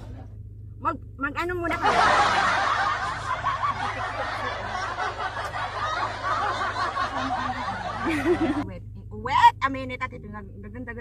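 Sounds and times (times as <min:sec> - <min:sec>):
low steady hum: 0:00.0 - 0:11.0
crowd laughing: 0:01.7 - 0:08.6.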